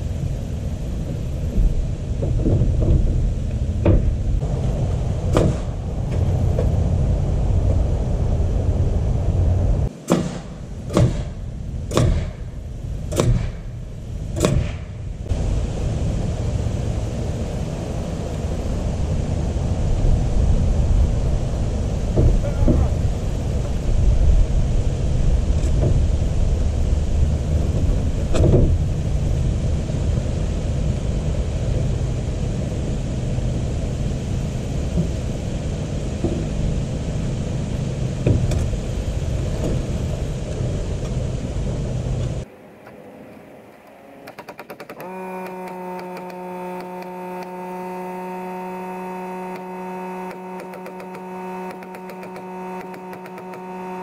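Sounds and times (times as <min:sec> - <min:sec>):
electrical hum: 0:00.0 - 0:54.0
steady outdoor rumbling: 0:00.0 - 0:54.0.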